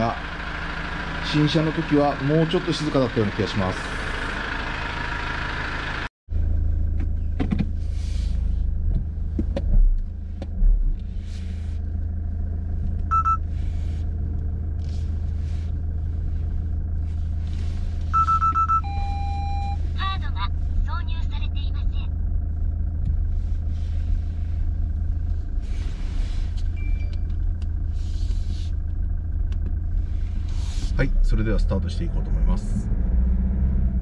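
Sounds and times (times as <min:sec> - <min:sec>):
diesel engine idling: 0:00.0 - 0:34.0
short electronic beeps: 0:13.1 - 0:13.4, 0:18.1 - 0:19.8.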